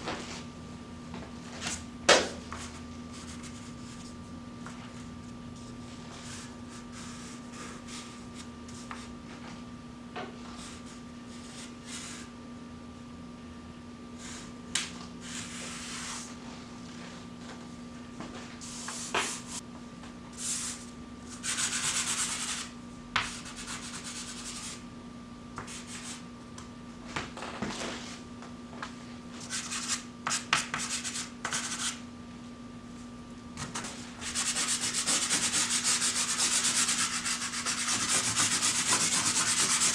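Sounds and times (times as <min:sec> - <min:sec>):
steady hum: 0:00.0 - 0:39.9
chalk scratching on paper: 0:21.4 - 0:24.8, 0:29.4 - 0:32.0, 0:34.2 - 0:39.9.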